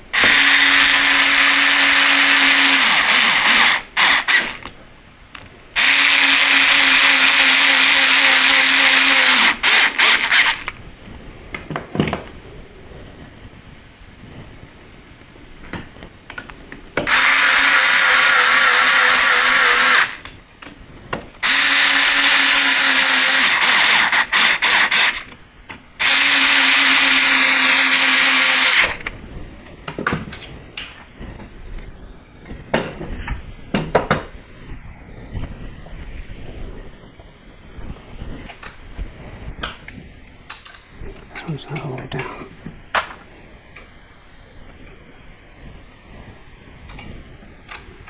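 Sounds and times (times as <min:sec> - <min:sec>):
electric screwdriver running: 0:00.1 - 0:04.7, 0:05.8 - 0:10.7, 0:17.1 - 0:20.3, 0:21.4 - 0:25.3, 0:26.0 - 0:29.1.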